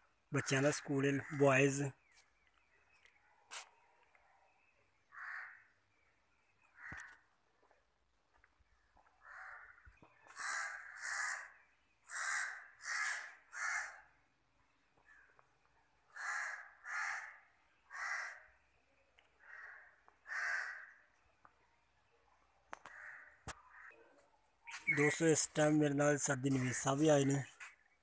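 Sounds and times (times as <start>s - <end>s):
crow cawing: 5.1s - 5.7s, 6.7s - 7.2s, 9.2s - 14.1s, 16.1s - 18.5s, 19.4s - 21.1s, 22.8s - 24.0s.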